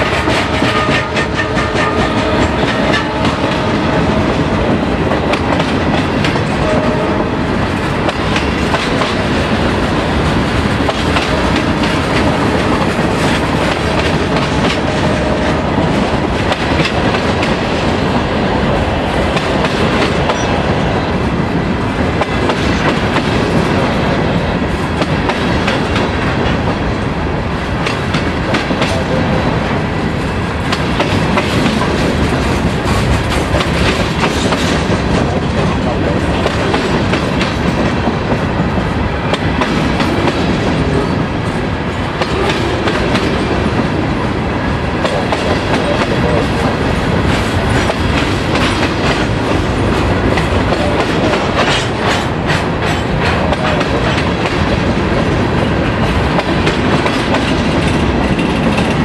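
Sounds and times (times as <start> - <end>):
freight train rumbling: 0.0 - 59.0
wheels clacking over rails: 30.6 - 44.3, 44.9 - 59.0.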